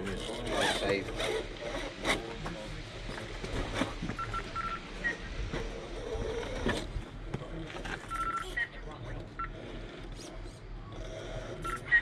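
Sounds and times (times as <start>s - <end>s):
short electronic beeps: 4.2s - 5.3s, 8.1s - 8.8s, 11.6s - 12.0s.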